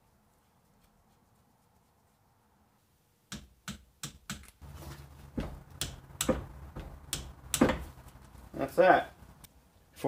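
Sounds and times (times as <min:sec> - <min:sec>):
sharp metallic clicks and taps: 0:05.7 - 0:08.2.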